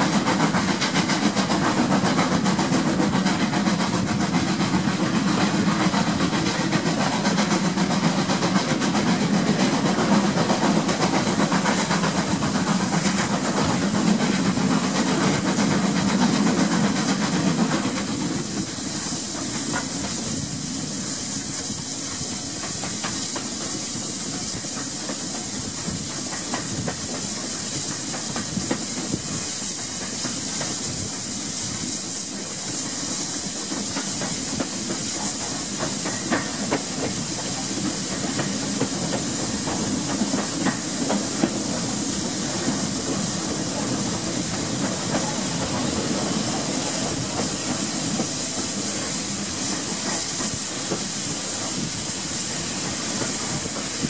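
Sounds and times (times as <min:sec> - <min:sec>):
steam locomotive hiss: 0:00.0 - 0:54.0
train wheels rumbling: 0:00.0 - 0:54.0
faint rail clicks: 0:31.7 - 0:51.8.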